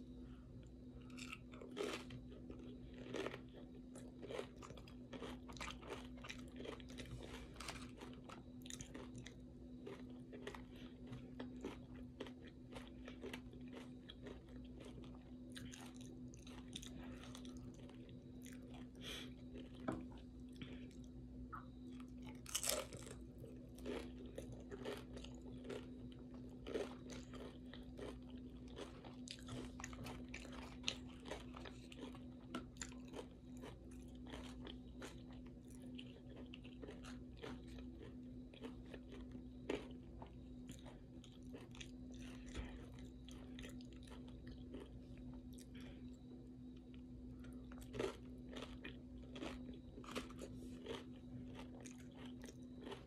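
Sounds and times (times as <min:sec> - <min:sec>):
person chewing crunchy chips: 0:01.0 - 0:53.0.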